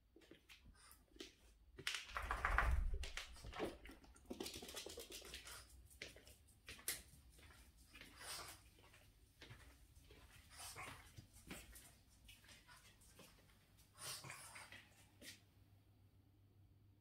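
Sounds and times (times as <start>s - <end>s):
dog claws clicking on hard floor: 0.8s - 8.5s.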